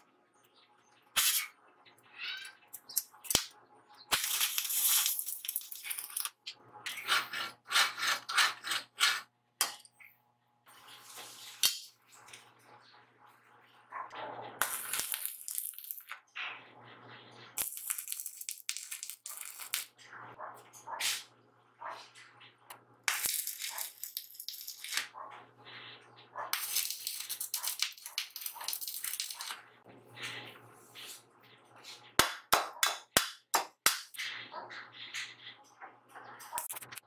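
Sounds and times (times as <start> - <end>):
welding arc crackling: 4.1 - 6.2.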